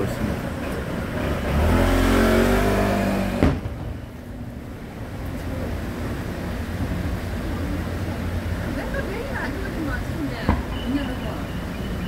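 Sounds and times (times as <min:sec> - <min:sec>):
car engine accelerating: 0:00.0 - 0:03.8
low rumble of traffic engines: 0:00.0 - 0:12.0
sharp crack: 0:03.3 - 0:03.9.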